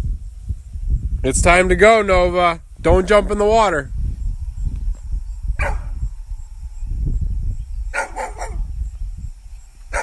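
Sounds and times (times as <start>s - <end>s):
dog barking: 5.6s - 5.9s, 7.9s - 8.7s.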